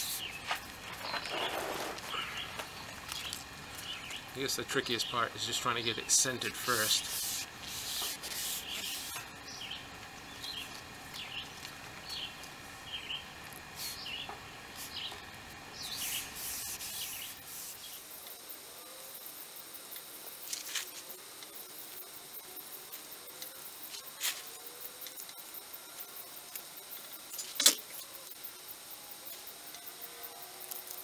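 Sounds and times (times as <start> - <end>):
rubber rubbing against boat hull: 1.0 - 2.1.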